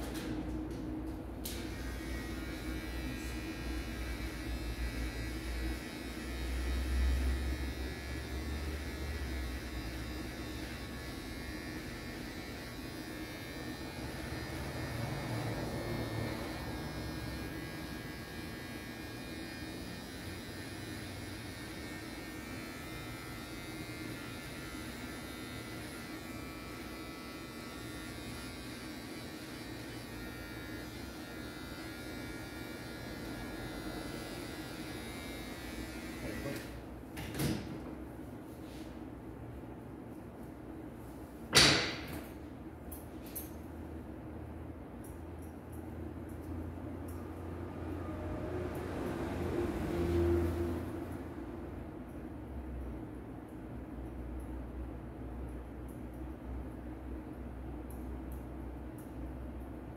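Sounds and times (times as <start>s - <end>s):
electric hair clipper buzzing: 1.4s - 36.9s.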